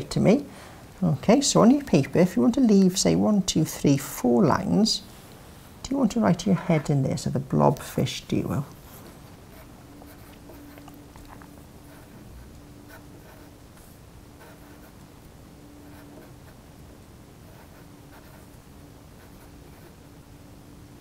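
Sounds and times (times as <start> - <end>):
pencil scratching on paper: 8.9 - 10.8, 11.8 - 15.0, 15.8 - 16.6, 17.5 - 18.5.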